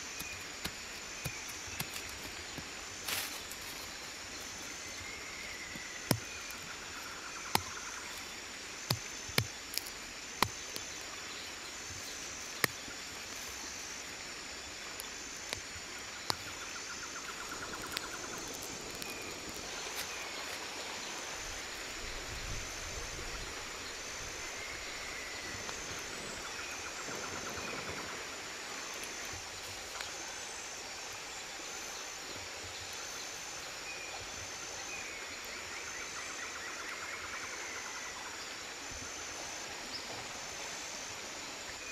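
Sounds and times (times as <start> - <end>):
forest insects: 0.0 - 41.9
insect high pulsing call: 0.0 - 41.9
machete striking soil: 5.6 - 6.6, 7.4 - 8.2, 8.8 - 10.9.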